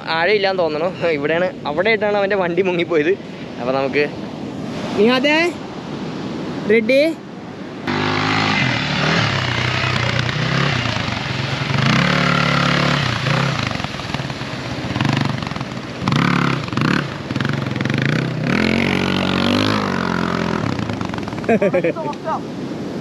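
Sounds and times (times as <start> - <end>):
motorcycle engine revving: 7.8 - 22.0.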